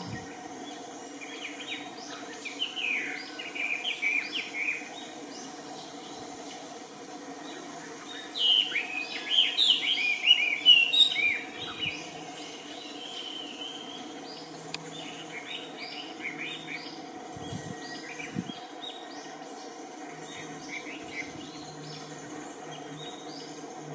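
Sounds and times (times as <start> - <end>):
steady low hum: 0.0 - 23.9
bird chirping: 7.4 - 23.9.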